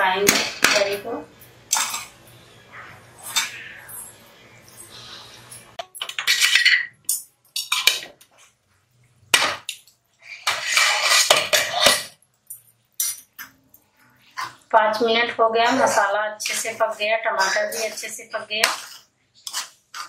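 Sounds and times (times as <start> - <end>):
steel spatula scraping pan: 10.2 - 12.2, 15.6 - 20.0.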